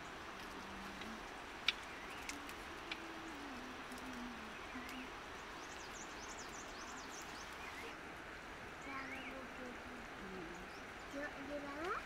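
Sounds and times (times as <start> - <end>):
birds chirping: 0.0 - 12.0
steady outdoor hiss: 0.0 - 12.0
twigs snapping: 0.4 - 3.1.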